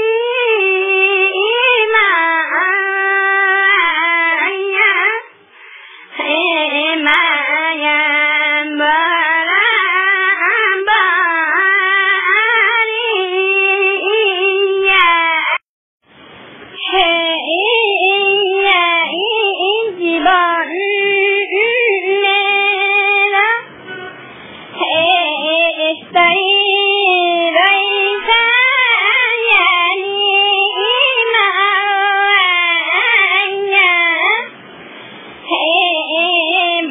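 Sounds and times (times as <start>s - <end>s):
high voice singing: 0.0s - 15.6s, 16.7s - 34.7s, 35.4s - 36.9s
high-pitched voice singing: 16.8s - 24.2s, 24.8s - 34.5s.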